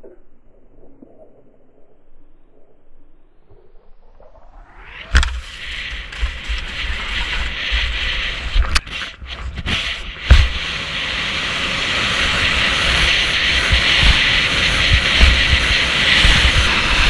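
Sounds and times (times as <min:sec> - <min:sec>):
wind buffeting microphone: 0:05.0 - 0:17.0
skis hissing over snow: 0:05.1 - 0:17.0.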